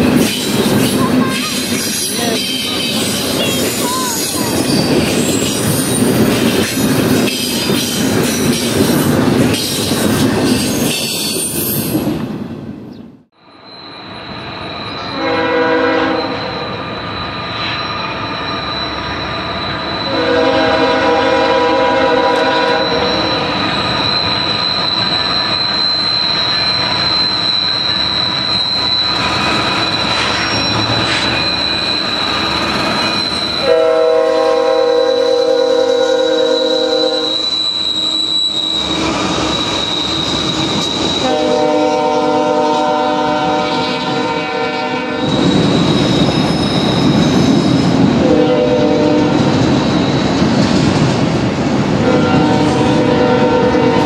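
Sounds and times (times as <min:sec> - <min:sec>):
train cars rumbling and clattering: 0:00.0 - 0:54.0
high-pitched wheel squeal: 0:13.5 - 0:21.3, 0:22.1 - 0:50.3
locomotive air horn blasts: 0:15.1 - 0:16.6, 0:20.1 - 0:23.1, 0:33.6 - 0:37.4, 0:41.2 - 0:45.3, 0:48.2 - 0:49.4, 0:52.0 - 0:54.0.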